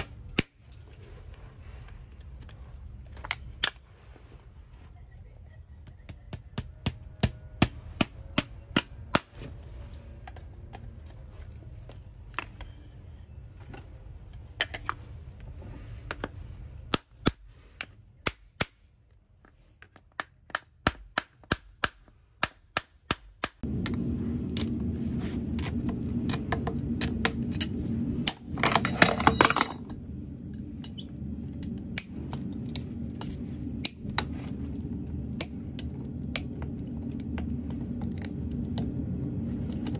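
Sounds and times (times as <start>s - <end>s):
hammer tapping horseshoe nails: 6.0s - 9.3s, 19.8s - 23.6s.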